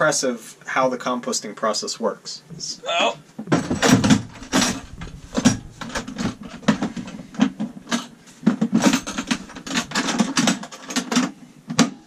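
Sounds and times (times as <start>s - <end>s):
plastic toilet lid knocking and rattling: 3.4s - 12.0s.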